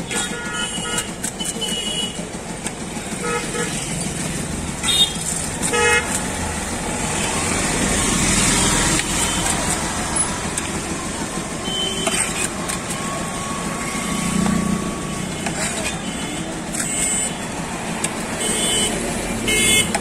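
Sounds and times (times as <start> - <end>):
vehicle horn toots: 0.0 - 2.2, 4.8 - 6.2, 18.4 - 20.0
street traffic: 0.0 - 20.0.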